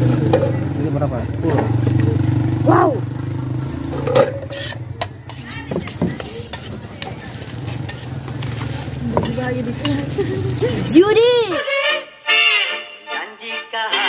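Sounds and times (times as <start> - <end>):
metal utensil clinking on pan: 4.0 - 10.8
food sizzling in hot oil: 5.3 - 11.6.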